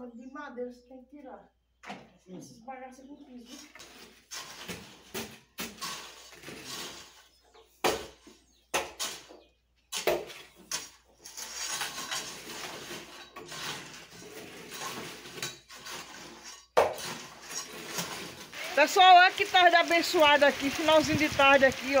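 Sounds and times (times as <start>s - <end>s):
shovels scraping soil: 3.6s - 7.4s, 9.9s - 22.0s.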